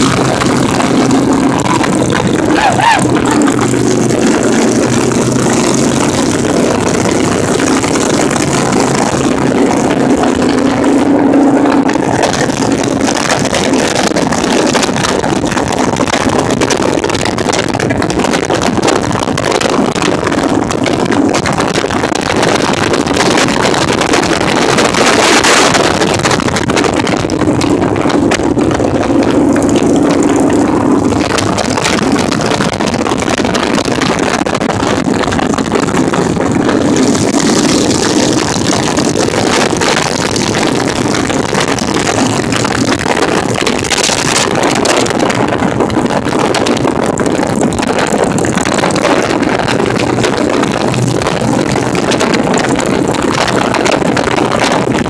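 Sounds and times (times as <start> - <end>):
motorcycle engine hum: 0.0 - 55.0
wind and road noise: 0.0 - 55.0.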